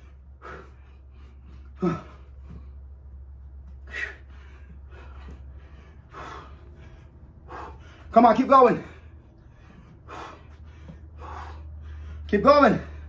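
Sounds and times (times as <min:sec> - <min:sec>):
man breathing hard: 0:00.0 - 0:13.0
steady low hum: 0:00.0 - 0:13.0
man grunting: 0:01.8 - 0:02.2.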